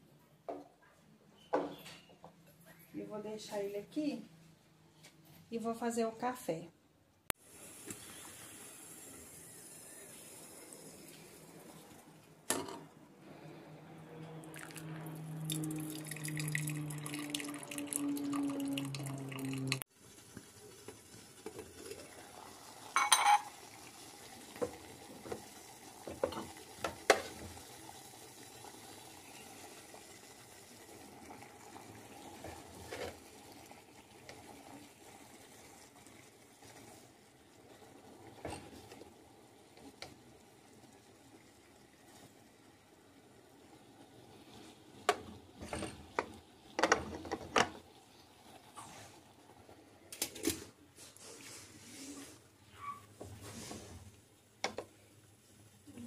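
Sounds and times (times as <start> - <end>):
tap water running into kettle: 14.5 - 48.7.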